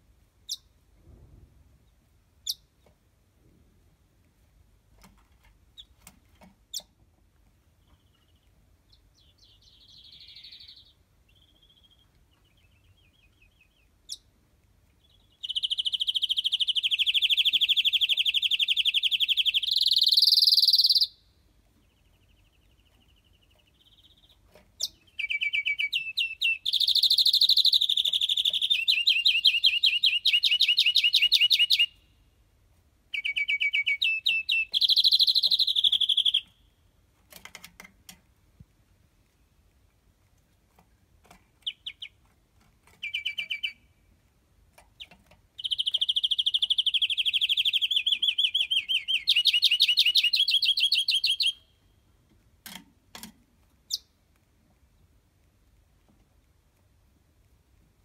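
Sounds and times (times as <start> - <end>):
finch singing trills: 7.8 - 14.2, 21.8 - 32.0, 33.1 - 36.5, 42.9 - 43.8, 45.0 - 51.7.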